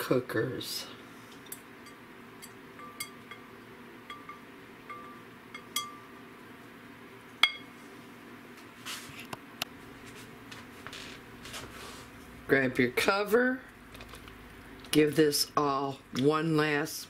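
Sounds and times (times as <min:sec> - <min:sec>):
whisk clinking on ceramic bowl: 0:01.8 - 0:03.5, 0:04.1 - 0:06.1
soft rustles: 0:07.9 - 0:12.3.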